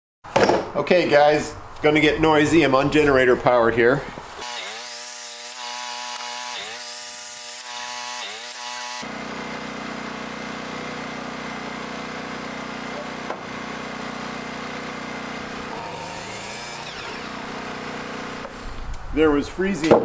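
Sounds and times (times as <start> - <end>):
miter saw cutting wood: 4.3 - 18.9.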